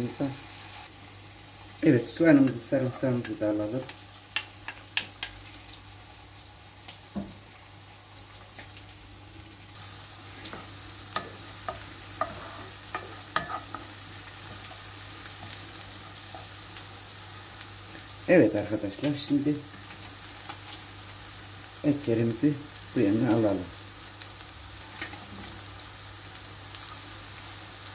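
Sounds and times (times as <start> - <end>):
onion sizzling in a pan: 0.0 - 27.9
wooden spoon scraping a pan: 10.3 - 14.8.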